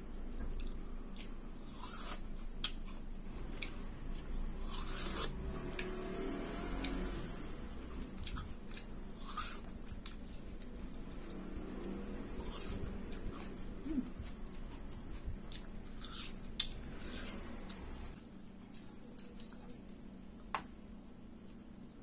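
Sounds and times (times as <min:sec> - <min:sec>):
watermelon being bitten and chewed: 0:00.5 - 0:07.2, 0:07.8 - 0:20.2.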